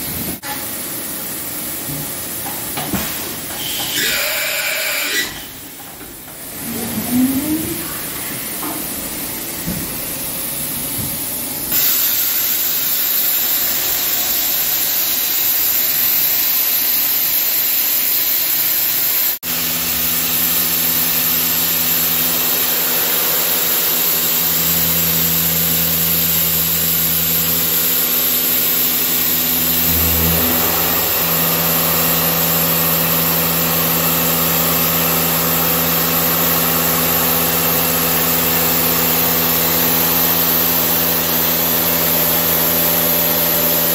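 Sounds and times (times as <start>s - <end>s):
lathe machine hum: 19.5s - 43.9s.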